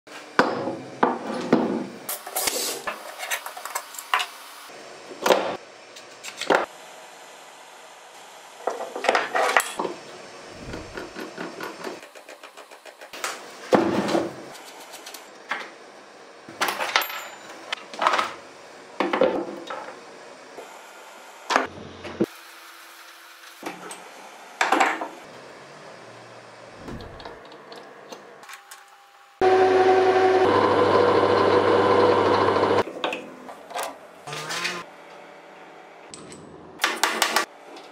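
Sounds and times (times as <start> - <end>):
metal tools clinking on workbench: 16.6 - 17.7.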